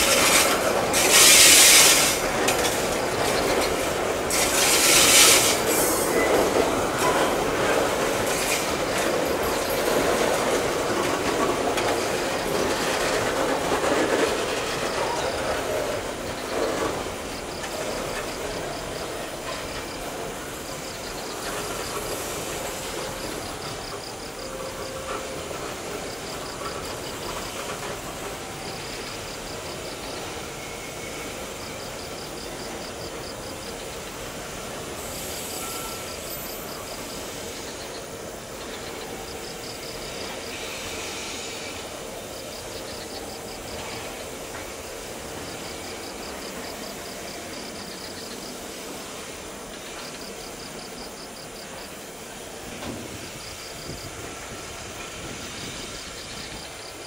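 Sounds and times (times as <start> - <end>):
wheels clicking over rail joints: 0.0 - 30.5
freight train rolling past: 0.0 - 57.0.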